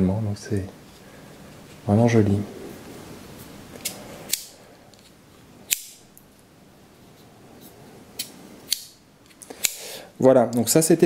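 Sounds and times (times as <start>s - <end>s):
folding knife blade clicking: 3.8s - 4.5s, 5.7s - 6.0s.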